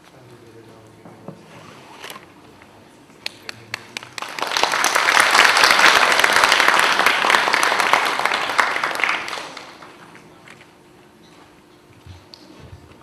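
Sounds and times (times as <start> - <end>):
audience applauding: 3.3 - 10.1.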